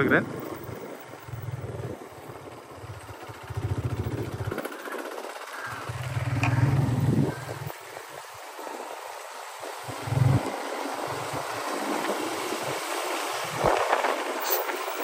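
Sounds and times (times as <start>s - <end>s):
small engine rumbling: 0.0s - 7.8s, 9.7s - 11.3s.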